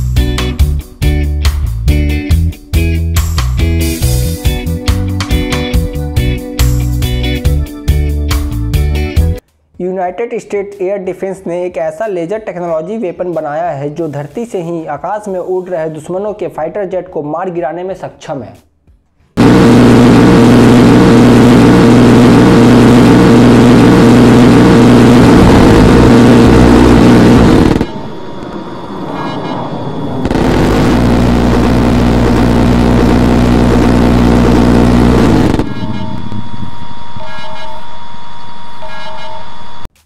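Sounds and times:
loud motor drone: 0:19.4 - 0:38.7
short repeated tones: 0:35.3 - 0:38.0.

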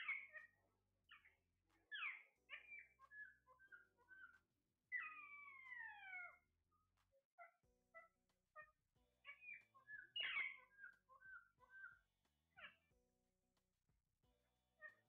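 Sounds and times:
parakeets chirping and squawking: 0:00.0 - 0:01.3, 0:01.9 - 0:06.4, 0:07.4 - 0:12.9, 0:14.8 - 0:15.0.

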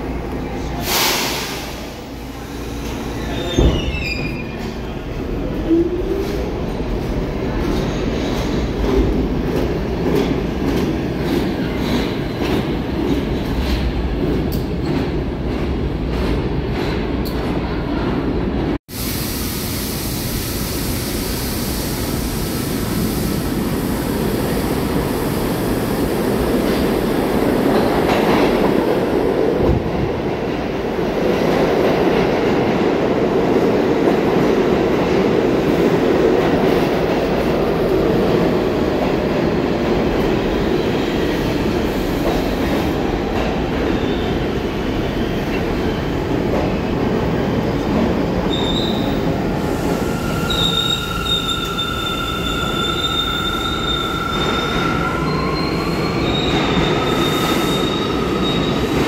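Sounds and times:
train wheels rumbling on track: 0:00.0 - 0:19.0, 0:19.6 - 0:59.0.

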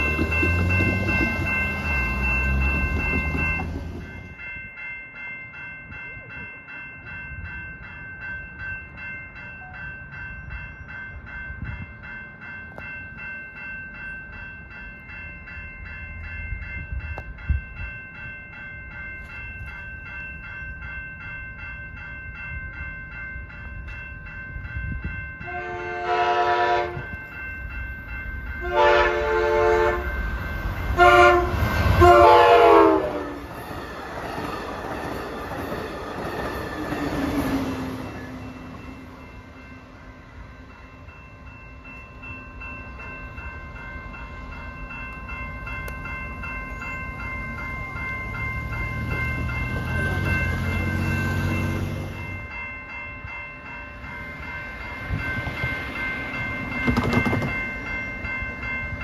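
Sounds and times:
railroad crossing bell ringing: 0:00.0 - 0:59.0
train rumble: 0:00.0 - 0:59.0
train horn blasts: 0:25.4 - 0:27.1, 0:28.6 - 0:30.2, 0:30.9 - 0:33.5.

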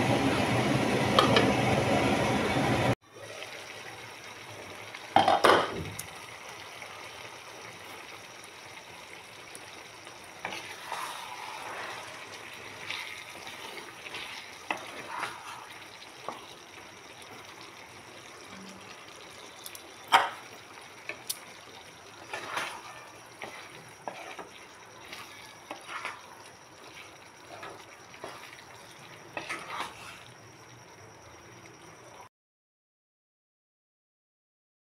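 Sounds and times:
curry bubbling in a pan: 0:03.0 - 0:32.3
spatula stirring and scraping: 0:10.2 - 0:16.6, 0:22.1 - 0:30.4.

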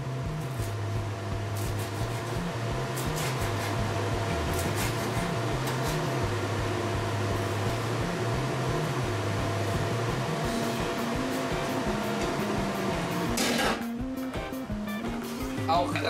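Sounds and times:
extractor hood fan humming: 0:00.0 - 0:16.0
knife chopping on wooden board: 0:01.6 - 0:03.8, 0:04.4 - 0:06.1.

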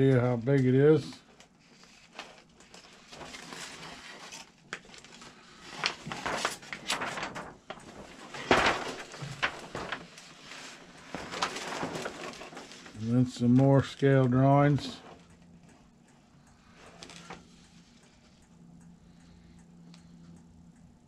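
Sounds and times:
paper sheets rustling: 0:01.6 - 0:15.1.

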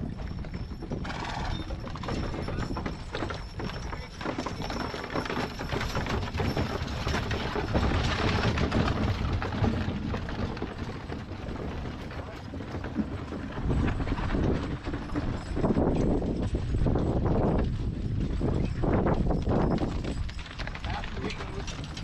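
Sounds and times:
horse hooves clip-clopping on dirt: 0:00.0 - 0:22.0
wagon rattling: 0:00.0 - 0:22.0.

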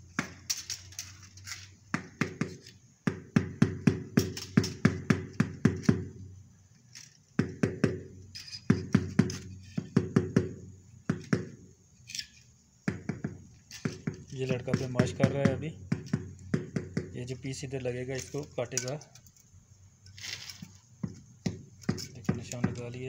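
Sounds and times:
rapid hammering knocks: 0:01.8 - 0:06.2, 0:07.4 - 0:11.7, 0:12.8 - 0:17.4, 0:21.0 - 0:23.0.

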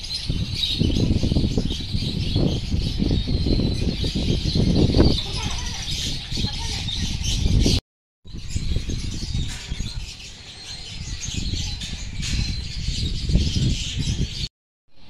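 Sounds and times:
birds chirping and twittering: 0:00.0 - 0:15.0.

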